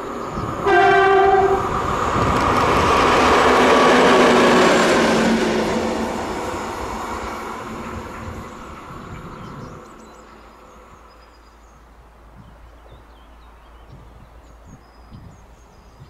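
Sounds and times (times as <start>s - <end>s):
wind rumble on microphone: 0.0s - 11.1s, 11.8s - 16.0s
train passing: 0.0s - 13.6s
faint birdsong chirps: 7.2s - 16.0s.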